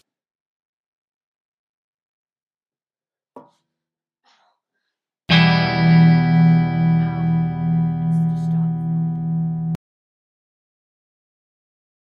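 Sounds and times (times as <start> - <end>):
distorted guitar chord: 5.3 - 9.8.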